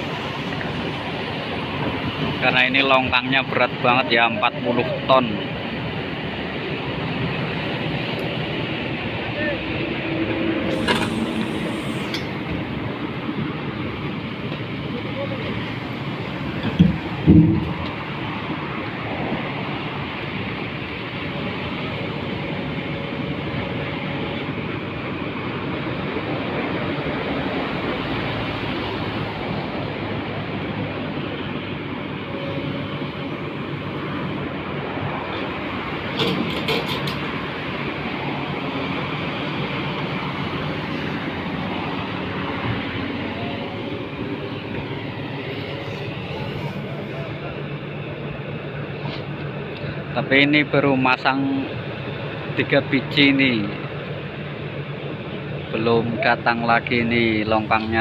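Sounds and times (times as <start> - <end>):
excavator engine running: 5.0 - 50.2.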